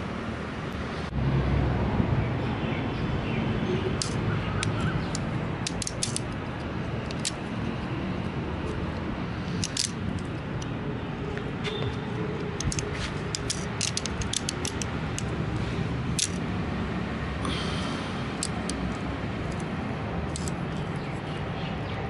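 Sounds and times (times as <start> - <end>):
low outdoor rumble: 0.0 - 22.0
small plastic clicks: 4.0 - 7.5, 9.5 - 10.7, 12.4 - 15.4, 16.1 - 16.4, 18.4 - 19.7, 20.3 - 20.8.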